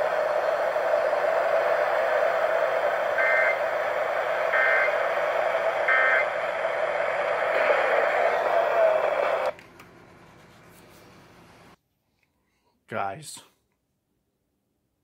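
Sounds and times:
radio broadcast hiss: 0.0 - 9.5.

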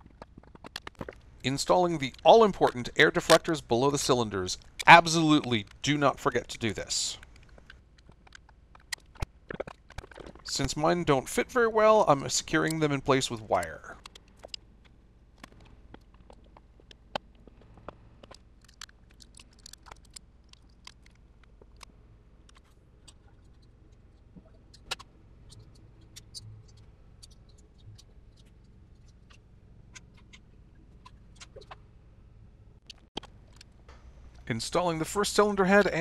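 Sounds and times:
faint low hum: 0.0 - 36.0.

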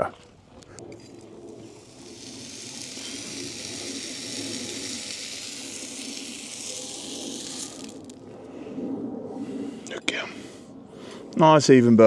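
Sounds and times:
hot horseshoe sizzling on hoof: 0.8 - 8.3.

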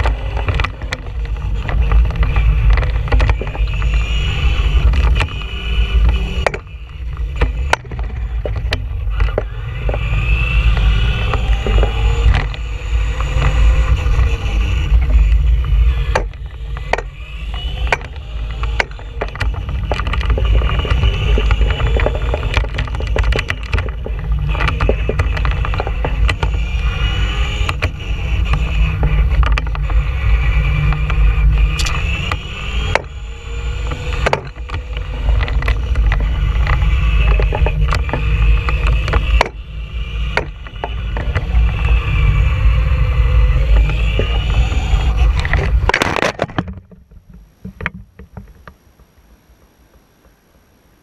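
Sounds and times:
small clicks: 0.0 - 39.6
electric motor whine: 0.0 - 46.8
wind noise: 0.0 - 49.1
tyres rumbling on asphalt: 0.0 - 49.2
toy truck crashing: 31.0 - 46.8.

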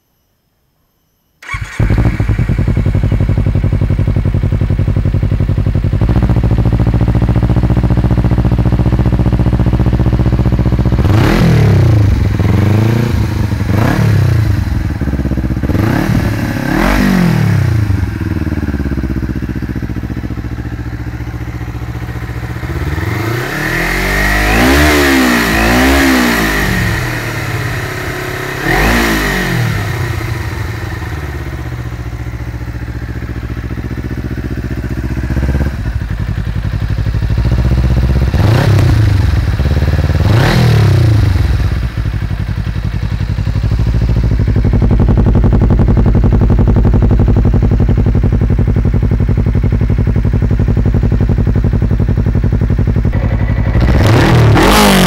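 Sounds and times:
motorcycle engine idling and revving: 1.4 - 55.0.

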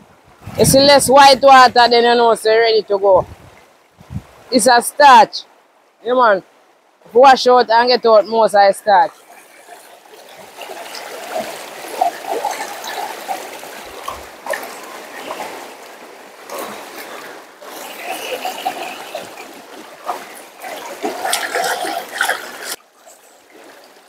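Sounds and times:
water sloshing and splashing: 7.7 - 24.0.

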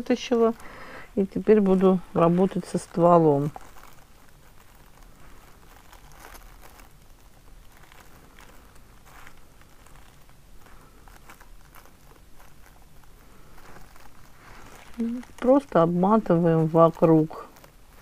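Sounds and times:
rustling and crinkling: 0.0 - 18.0.

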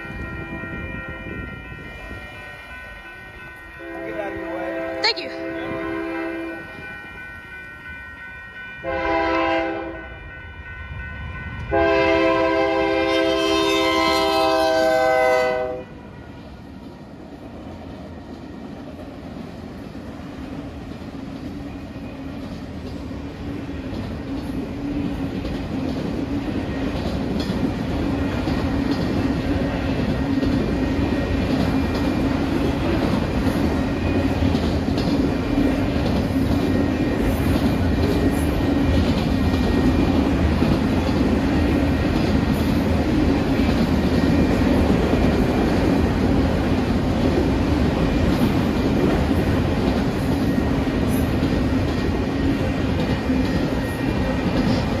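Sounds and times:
locomotive air horn: 3.8 - 6.7, 8.8 - 10.6, 11.7 - 16.0
train wheels clattering on rails: 16.7 - 55.0.

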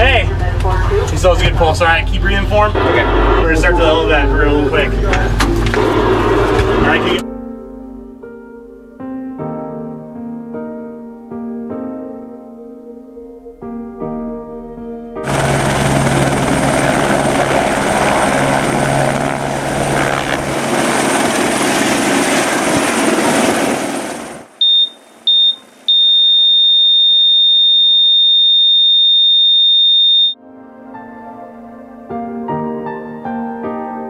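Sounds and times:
helicopter rotor and turbine: 1.0 - 7.2, 15.2 - 24.6
continuous flatline tone: 2.4 - 7.2, 24.6 - 30.4
heart monitor beeps: 24.6 - 30.4.

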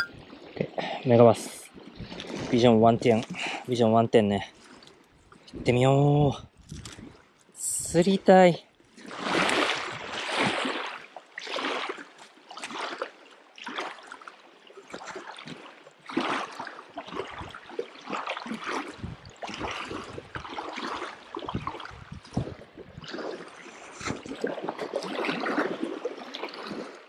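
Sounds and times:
waves lapping on pebbles: 8.8 - 27.0.

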